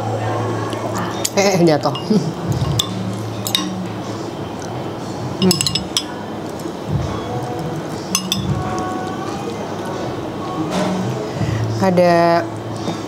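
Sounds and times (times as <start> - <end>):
cutlery clinking against bowl: 1.2 - 3.8, 5.4 - 6.2, 8.1 - 9.0.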